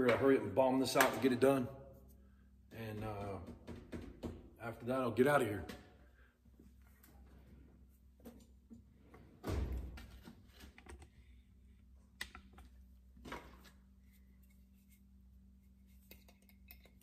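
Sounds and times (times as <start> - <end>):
faint steady hum: 5.8 - 17.0.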